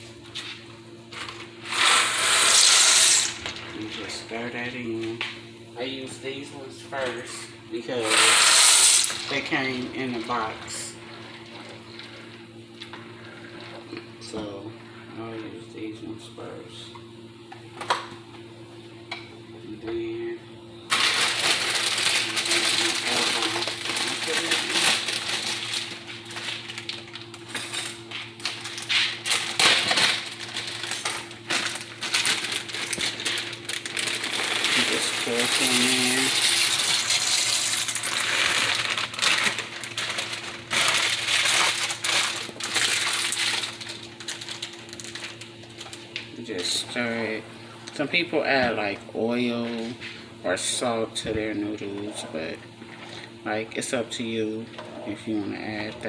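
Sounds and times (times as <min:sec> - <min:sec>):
water boiling and bubbling: 0:09.7 - 0:14.2, 0:30.3 - 0:46.2
plastic bag crinkling: 0:20.9 - 0:46.2.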